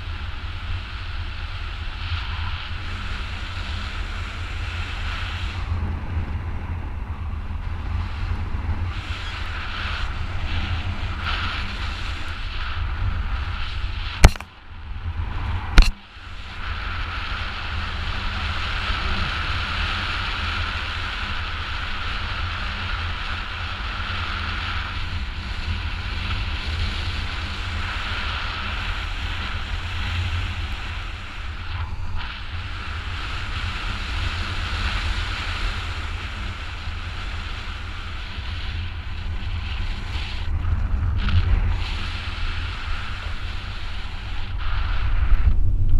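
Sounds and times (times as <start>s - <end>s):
wind buffeting microphone: 0.0s - 45.9s.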